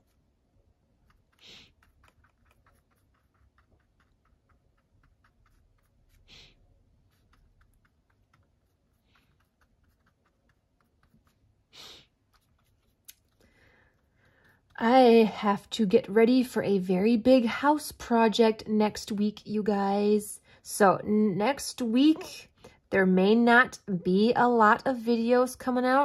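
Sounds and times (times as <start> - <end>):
paintbrush dabbing on cardboard: 0.0 - 16.0.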